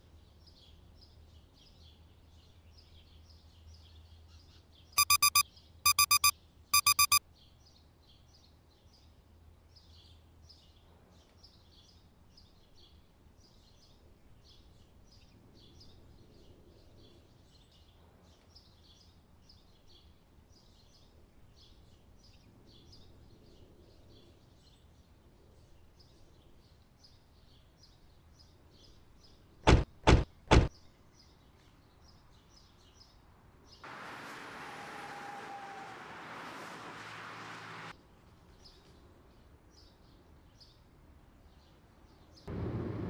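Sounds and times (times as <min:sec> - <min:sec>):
alarm clock beeps: 0:05.0 - 0:07.2.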